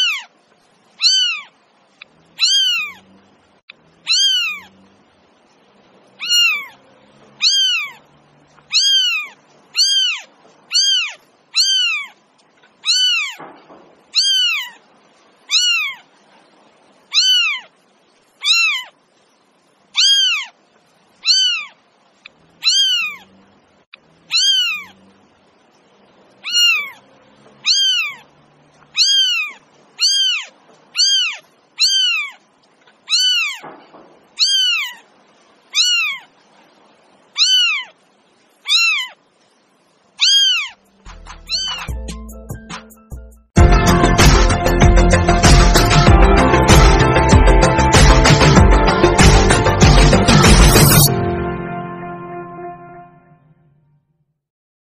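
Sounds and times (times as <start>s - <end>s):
kitten mewing: 0.0s - 0.3s, 1.0s - 1.5s, 2.4s - 3.1s, 4.0s - 4.9s, 6.2s - 6.8s, 7.4s - 8.0s, 8.6s - 12.2s, 12.8s - 13.4s, 14.1s - 14.8s, 15.5s - 16.0s, 17.1s - 17.7s, 18.4s - 19.0s, 20.0s - 20.6s, 21.2s - 23.4s, 24.2s - 25.1s, 26.4s - 32.4s, 33.0s - 33.7s, 34.4s - 35.1s, 35.7s - 36.3s, 37.4s - 38.0s, 38.6s - 39.2s, 40.2s - 40.8s, 41.5s - 41.9s.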